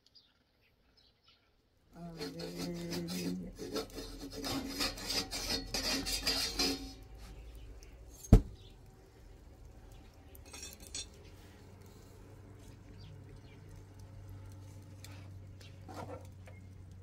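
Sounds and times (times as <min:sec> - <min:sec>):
flatbread scraping on griddle: 0:02.0 - 0:08.7, 0:14.6 - 0:16.6.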